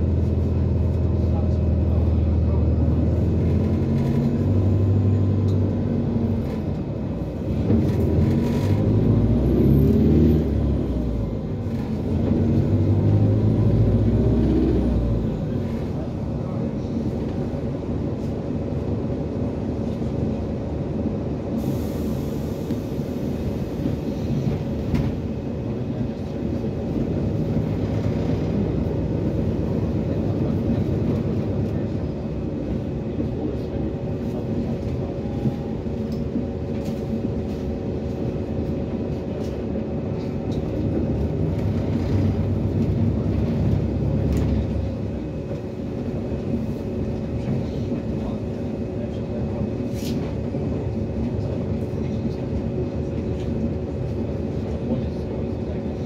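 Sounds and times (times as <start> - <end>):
bus diesel engine drone: 0.0 - 56.0
road rumble: 0.0 - 56.0
air hiss: 21.6 - 23.2.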